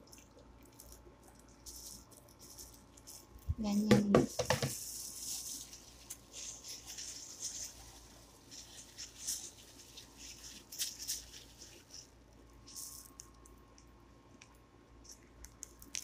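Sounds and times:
wet rustling and scraping of chicken: 0:04.6 - 0:13.2.

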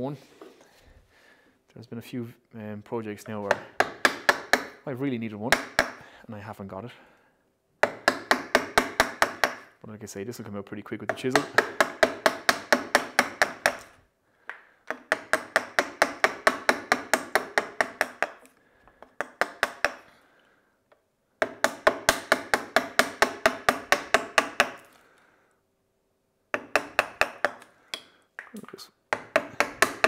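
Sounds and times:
chisel tapping into wood: 0:03.2 - 0:04.8, 0:05.5 - 0:06.0, 0:07.8 - 0:09.7, 0:11.1 - 0:20.1, 0:21.4 - 0:24.9, 0:26.5 - 0:30.0.

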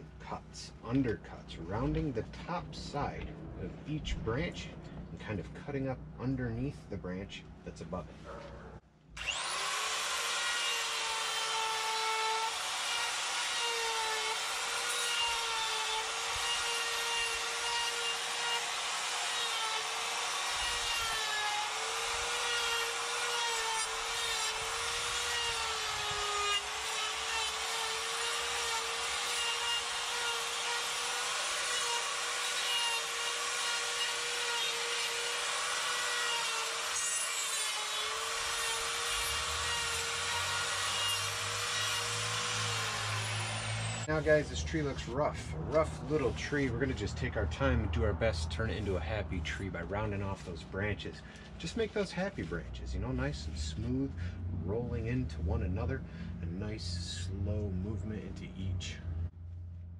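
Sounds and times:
die grinder carving wood: 0:09.2 - 0:44.1.

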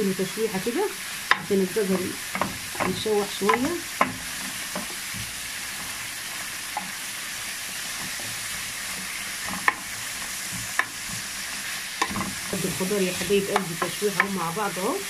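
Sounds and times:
vegetables sizzling in hot oil: 0:00.0 - 0:15.0
spatula knocking against pan: 0:02.3 - 0:05.4, 0:12.0 - 0:12.4.

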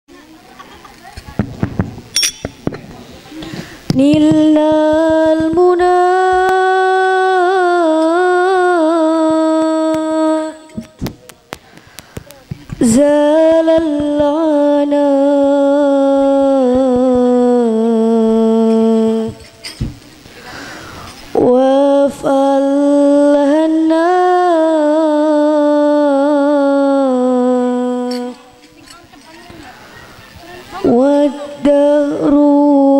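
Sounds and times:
woman singing devotional song: 0:03.4 - 0:32.9.

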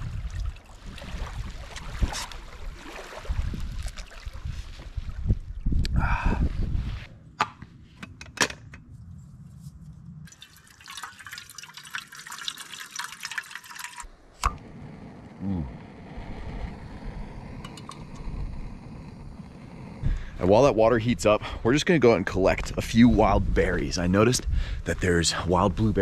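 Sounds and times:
water pouring into a pot: 0:10.3 - 0:14.1
gas burner hissing: 0:14.3 - 0:20.7.

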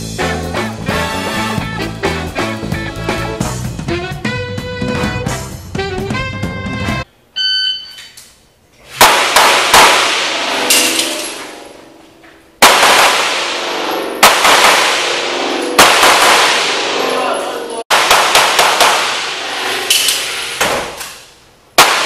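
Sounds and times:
shot timer beep: 0:07.4 - 0:08.1
echoing handgun shots: 0:09.0 - 0:11.4, 0:12.6 - 0:17.3, 0:17.9 - 0:21.0, 0:21.8 - 0:22.0.

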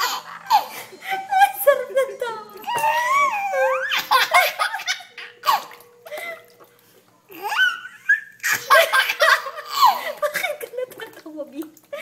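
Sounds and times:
baby laughing and squealing: 0:00.0 - 0:01.4, 0:02.6 - 0:05.8, 0:07.3 - 0:10.1.

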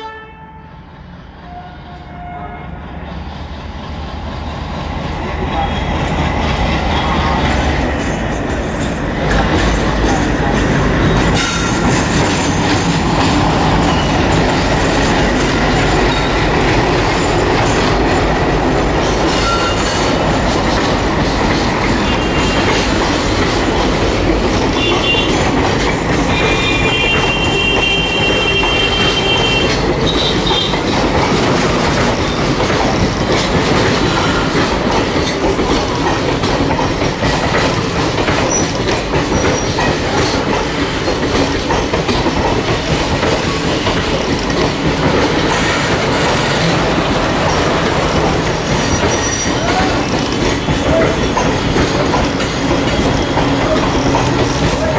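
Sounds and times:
diesel locomotive engine: 0:00.0 - 0:54.9
train wheels clattering: 0:03.2 - 0:54.9
wheel squeals: 0:19.3 - 0:20.0, 0:48.6 - 0:51.5.

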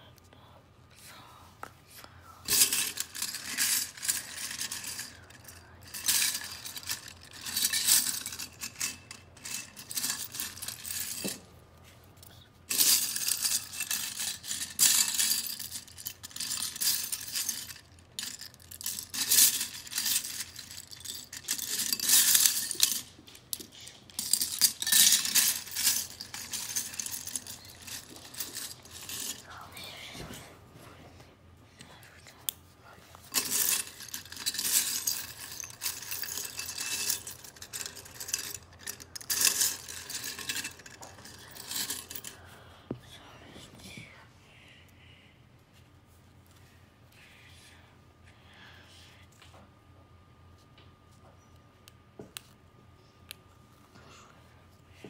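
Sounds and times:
plastic bricks rattling in a bowl: 0:12.7 - 0:29.4, 0:33.3 - 0:42.3.

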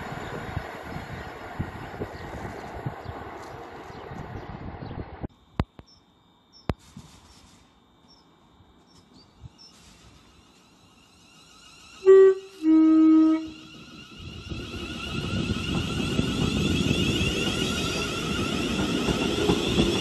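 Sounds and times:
train running noise: 0:00.0 - 0:05.3, 0:06.8 - 0:20.0
train two-tone horn: 0:12.0 - 0:13.6.

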